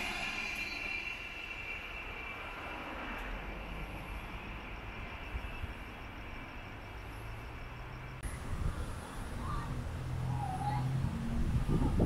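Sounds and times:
low outdoor rumble: 0.0 - 12.0.

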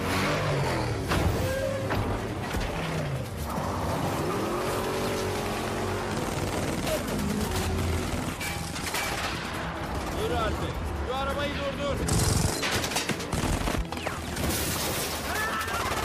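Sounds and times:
car engines revving hard: 0.0 - 8.4.

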